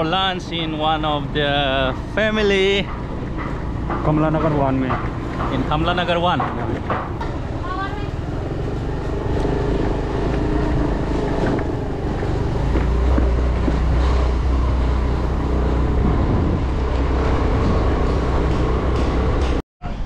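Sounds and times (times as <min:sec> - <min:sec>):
wind buffeting microphone: 0:01.7 - 0:19.5
motor scooter engine humming: 0:06.8 - 0:19.4.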